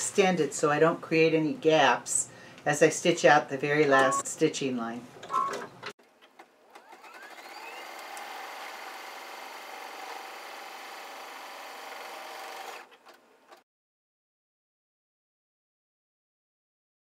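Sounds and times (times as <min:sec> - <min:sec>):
embroidery machine stitching: 0:06.7 - 0:12.9.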